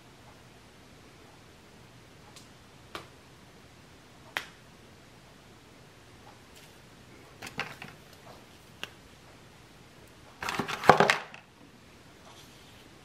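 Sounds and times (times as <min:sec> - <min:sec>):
faint steady hiss: 0:00.0 - 0:13.0
handling noise: 0:06.6 - 0:08.9, 0:10.4 - 0:11.5.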